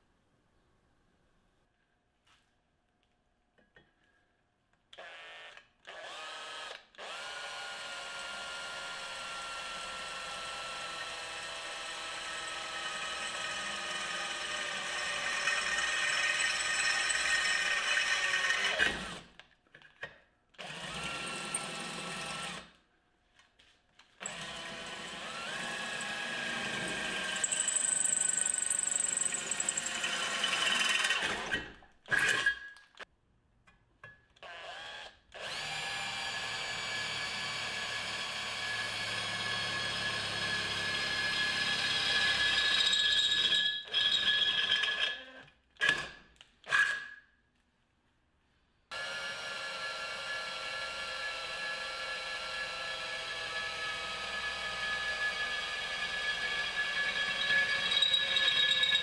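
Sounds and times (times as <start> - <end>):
cordless drill whining through steel: 4.9 - 19.4, 20.6 - 22.8, 24.2 - 32.8, 34.4 - 47.2, 48.9 - 59.0
drill trigger blips: 27.3 - 31.2.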